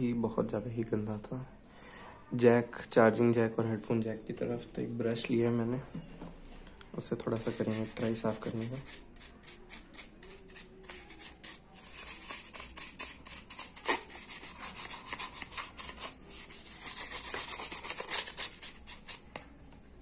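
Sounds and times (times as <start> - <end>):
small brush scrubbing: 7.3 - 19.3.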